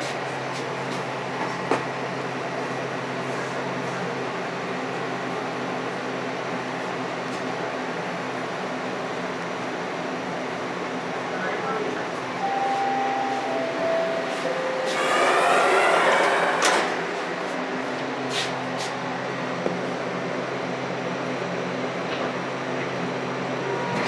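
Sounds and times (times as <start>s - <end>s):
train motor whining: 12.4s - 17.6s.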